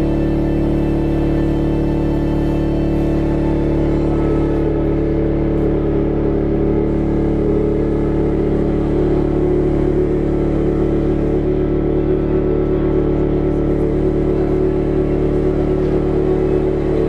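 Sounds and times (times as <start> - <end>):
electronic drone: 0.0 - 17.0.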